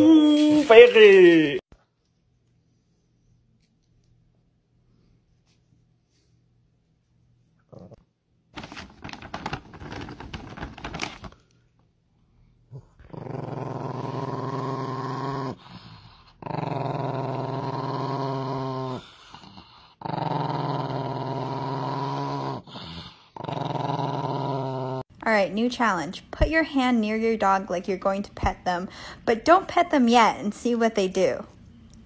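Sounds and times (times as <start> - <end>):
small dog growling: 7.6 - 8.0, 12.7 - 25.1
plastic bag crinkling: 8.5 - 11.5.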